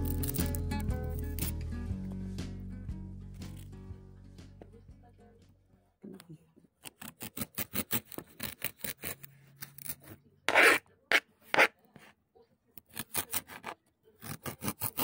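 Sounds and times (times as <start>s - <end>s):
blade scraping across board: 6.8s - 12.1s, 12.9s - 15.0s.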